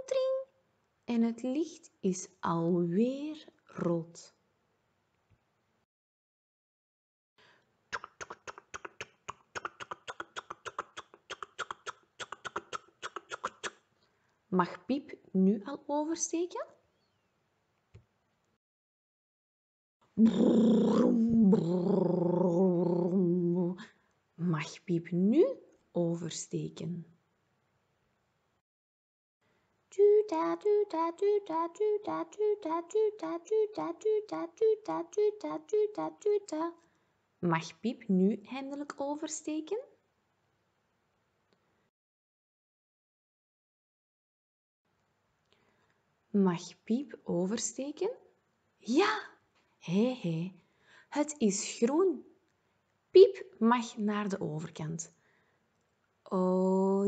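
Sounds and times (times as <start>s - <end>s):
tongue clicks: 7.9s - 13.9s
woman imitating a police siren: 20.2s - 23.6s.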